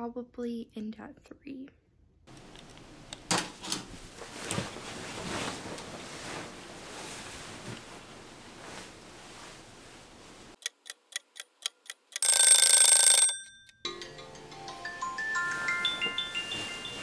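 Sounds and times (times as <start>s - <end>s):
clock ticking: 10.6s - 13.5s
alarm clock bell ringing: 12.2s - 13.8s.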